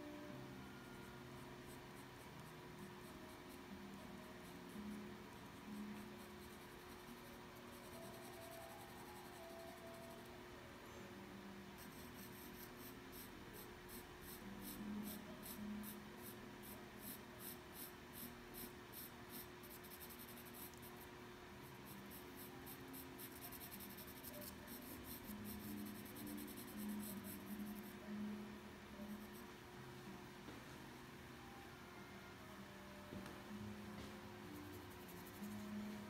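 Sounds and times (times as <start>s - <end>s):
faint pencil scratching on paper: 0.7s - 10.4s, 11.8s - 28.3s, 29.0s - 29.5s, 34.4s - 36.0s.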